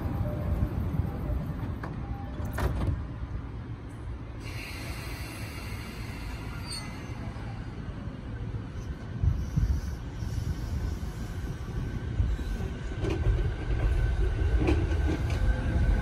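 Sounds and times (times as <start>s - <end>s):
low rumble of standing train: 0.0s - 16.0s
train doors closing with thump: 1.5s - 3.2s, 12.6s - 16.0s
air hiss: 4.4s - 7.4s.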